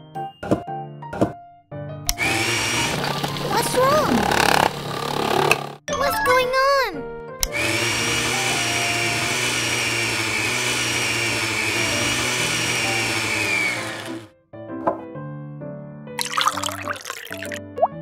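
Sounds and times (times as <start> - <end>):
blender motor whine: 2.1 - 5.8, 7.4 - 14.3.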